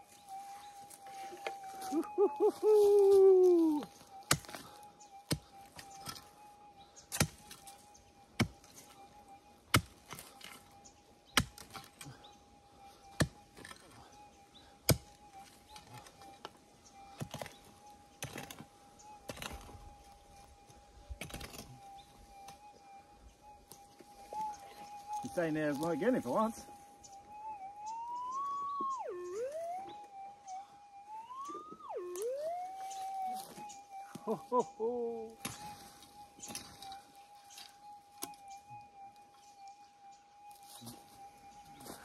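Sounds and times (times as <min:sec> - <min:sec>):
digging tool striking stony ground: 0:04.3 - 0:04.6, 0:05.3 - 0:06.3, 0:07.1 - 0:07.7, 0:09.7 - 0:10.7, 0:11.3 - 0:12.0, 0:13.1 - 0:14.0, 0:14.8 - 0:16.1, 0:17.2 - 0:19.8, 0:21.2 - 0:21.8, 0:35.4 - 0:35.9.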